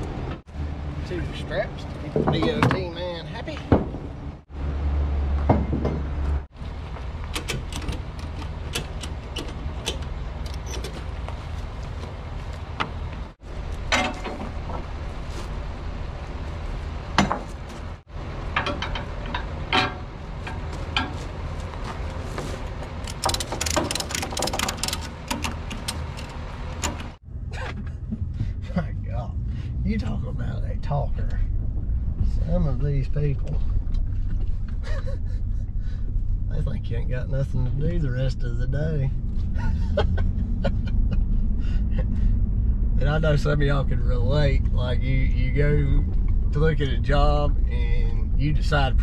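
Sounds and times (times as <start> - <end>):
ratchet buckles clicking and rattling: 23.0 - 27.2
steady low hum: 24.8 - 49.0.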